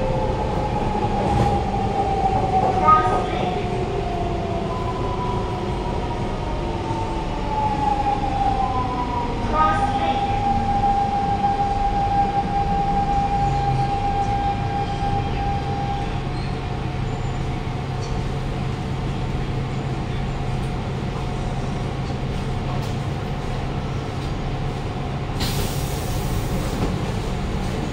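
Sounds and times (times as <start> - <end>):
train whine: 0.0 - 18.5
air hiss: 25.4 - 26.8.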